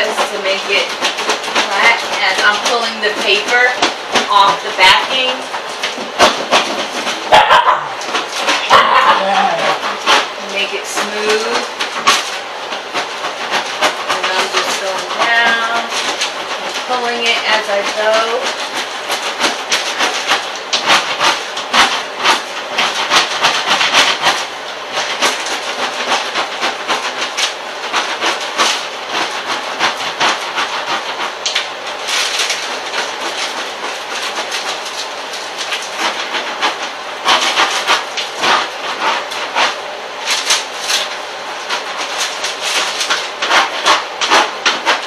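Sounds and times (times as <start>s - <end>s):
vinyl sheet crackling and rustling: 0.0s - 45.0s.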